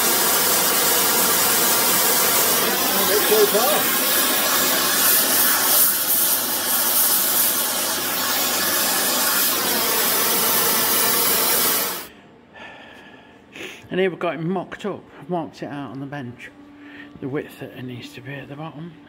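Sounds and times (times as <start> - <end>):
gas torch flame hissing: 0.0 - 12.1.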